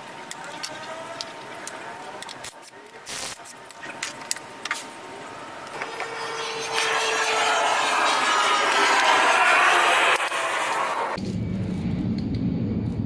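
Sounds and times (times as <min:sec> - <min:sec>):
rushing noise with low hum: 0:11.2 - 0:13.0.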